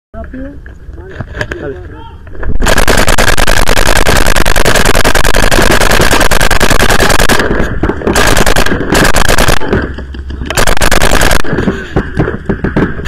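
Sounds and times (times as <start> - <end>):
paintball marker rapid firing: 2.6 - 13.0.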